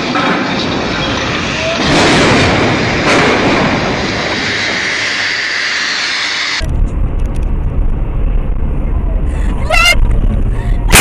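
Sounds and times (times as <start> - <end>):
crane crashing down: 0.0 - 7.2
car rumbling on road: 6.6 - 11.0.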